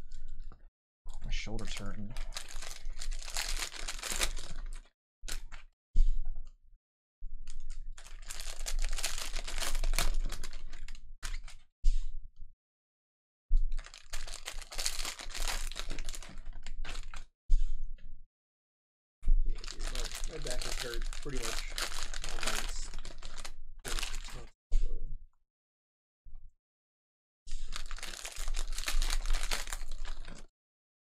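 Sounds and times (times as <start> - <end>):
wrapper crinkling and tearing: 1.5 - 5.6, 7.9 - 11.5, 13.7 - 17.2, 19.5 - 24.5, 27.6 - 30.5.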